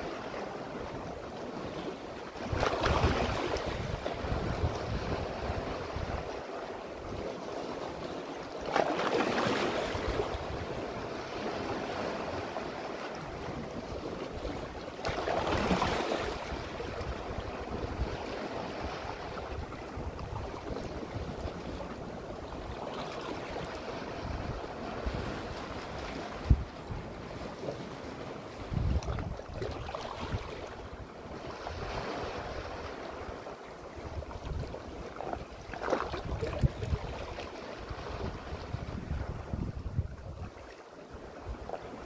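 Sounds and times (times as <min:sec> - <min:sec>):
sea waves washing among rocks: 0:00.0 - 0:42.0
wind buffeting microphone: 0:02.4 - 0:07.2, 0:15.1 - 0:22.8, 0:23.9 - 0:27.4, 0:28.6 - 0:33.4, 0:36.0 - 0:40.6.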